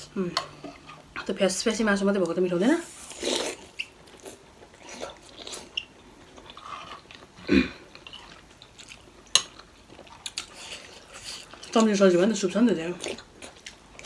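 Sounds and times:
people chewing: 3.0 - 12.0, 12.8 - 14.0.

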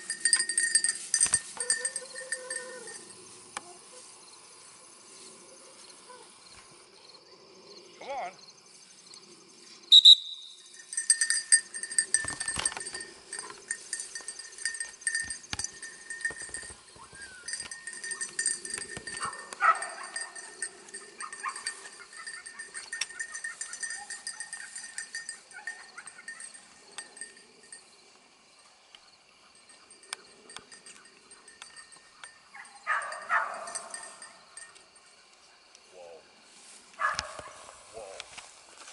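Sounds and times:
insects trilling: 0.0 - 38.9
footsteps through grass: 36.4 - 38.9.

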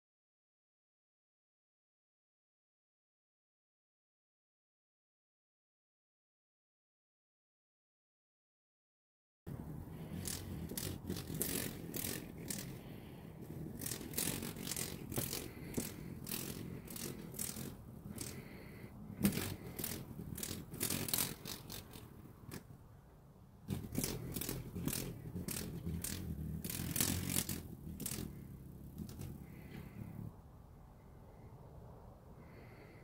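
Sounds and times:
rustling and scraping: 9.5 - 22.8, 23.6 - 30.3.

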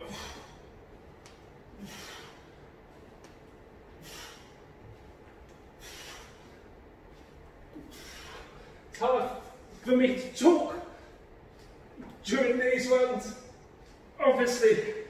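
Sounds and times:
man's sharp breaths out: 0.0 - 0.7, 1.7 - 2.6, 4.0 - 4.6, 5.8 - 6.7, 7.8 - 8.8.

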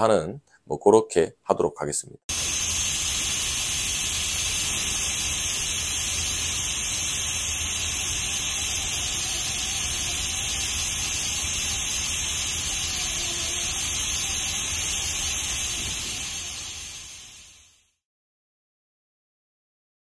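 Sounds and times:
welding arc hissing: 2.3 - 18.0.

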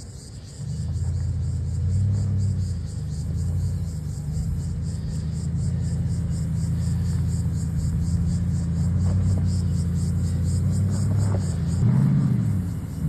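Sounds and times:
engine droning under load: 0.0 - 13.0.

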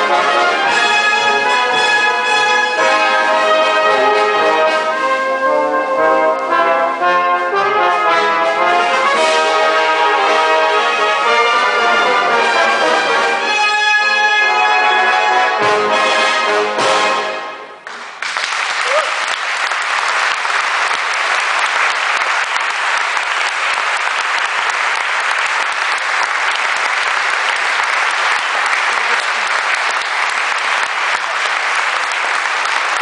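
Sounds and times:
audience applause: 17.8 - 33.0.

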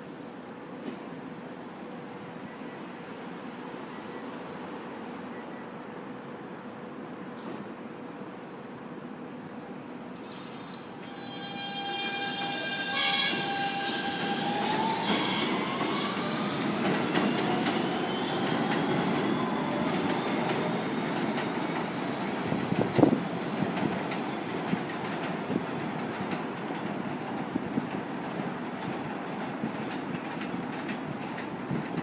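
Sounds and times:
train electric whine rising: 10.2 - 22.2.

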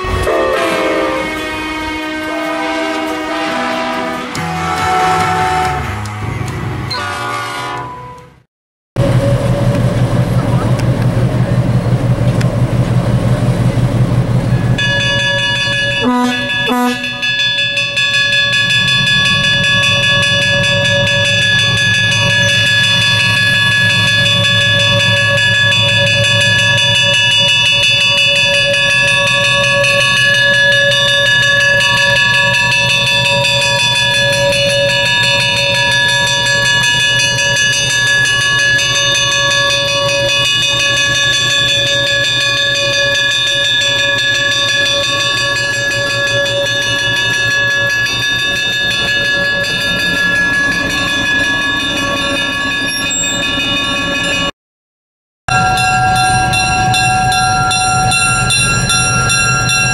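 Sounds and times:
diesel engine running: 9.0 - 14.8
locomotive bell ringing: 14.4 - 54.5, 55.5 - 59.9.

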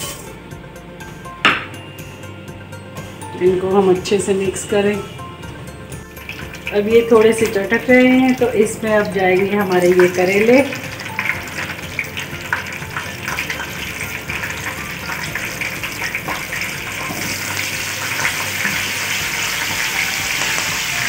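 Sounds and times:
vegetables sizzling in hot oil: 6.2 - 21.0.

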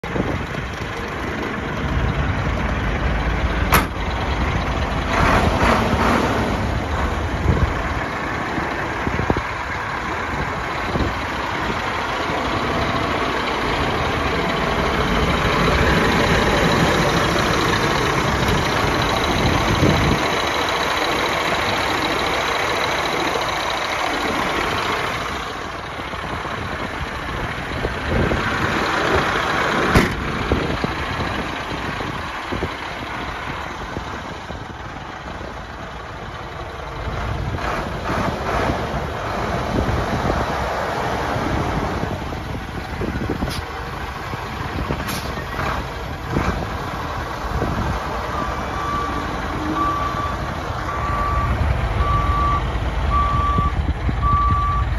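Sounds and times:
diesel truck engine idling: 0.0 - 54.9
sharp click: 3.7 - 4.0.

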